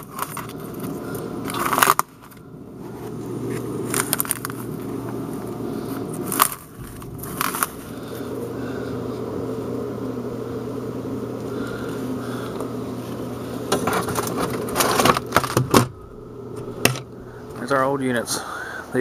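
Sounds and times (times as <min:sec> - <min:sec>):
steady machine hum: 0:00.0 - 0:19.0.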